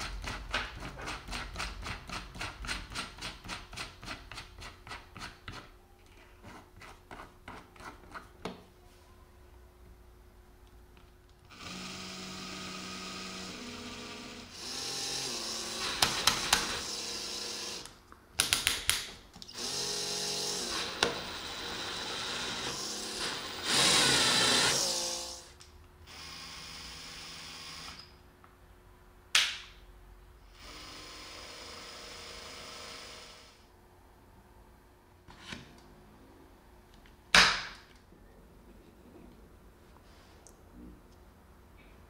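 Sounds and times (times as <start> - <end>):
cordless drill motor running: 11.5 - 17.9, 19.5 - 25.5, 26.1 - 28.0, 30.6 - 33.6.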